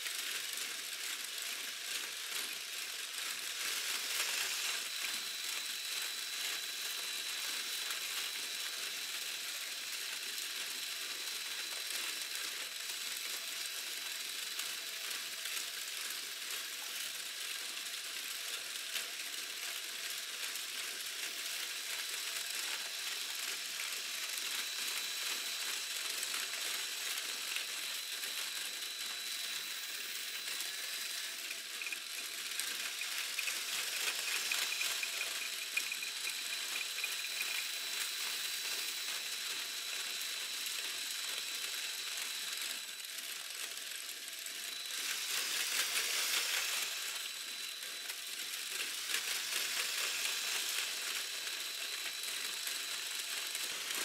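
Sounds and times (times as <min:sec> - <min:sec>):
plastic gears clicking rattle: 0:14.4 - 0:54.0
high motor whine: 0:21.7 - 0:43.2, 0:43.8 - 0:54.0.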